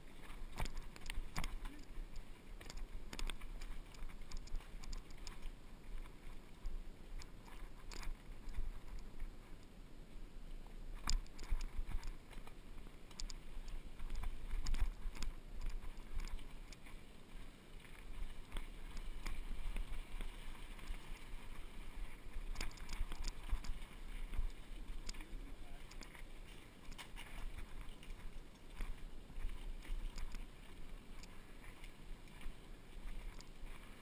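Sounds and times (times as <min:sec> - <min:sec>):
wind rumbling on microphone: 0:00.0 - 0:34.0
bike rattling over stones: 0:17.9 - 0:31.4.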